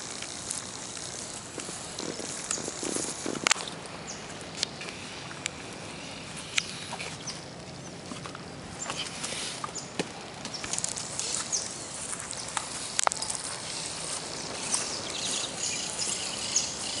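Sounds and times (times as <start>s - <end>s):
steady rustle: 0.0s - 17.0s
high bird chirps: 14.3s - 17.0s.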